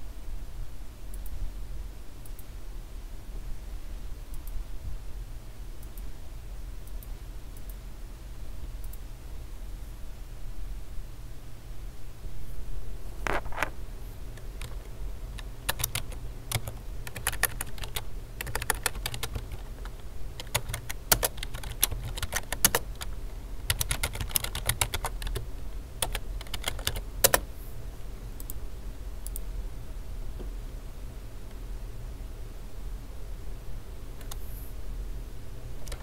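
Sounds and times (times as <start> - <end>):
steady low hum: 0.0 - 36.0
keyboard typing: 14.4 - 27.5, 34.2 - 34.4.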